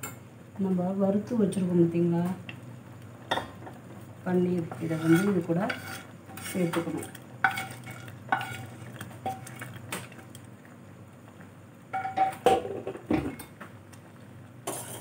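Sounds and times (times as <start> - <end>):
low steady hum: 0.0 - 15.0
metal clinking and scraping on pot: 4.6 - 10.4, 11.9 - 13.5, 14.6 - 15.0.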